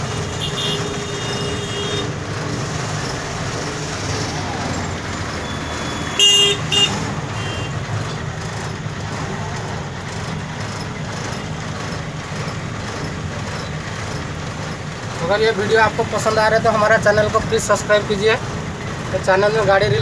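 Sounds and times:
vehicle horn honking: 0.0 - 2.1, 5.4 - 7.8
truck engine running: 0.0 - 20.0.

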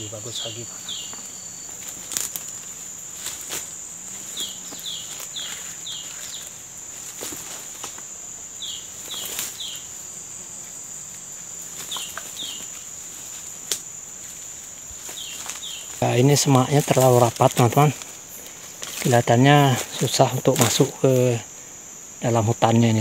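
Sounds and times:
insects droning: 0.0 - 23.0
footsteps crunching dry leaves: 0.9 - 8.2, 10.5 - 21.4
twig cracking: 1.8 - 3.7, 13.6 - 13.9.

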